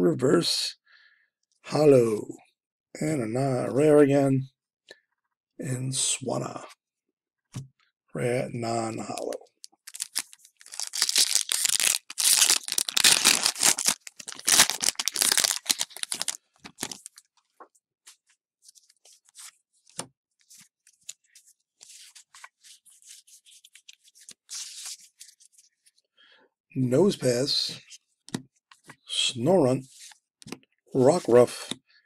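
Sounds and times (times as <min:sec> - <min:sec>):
cards rustling and flicking: 0:09.0 - 0:17.2
foil wrapper tearing and crinkling: 0:09.2 - 0:17.2.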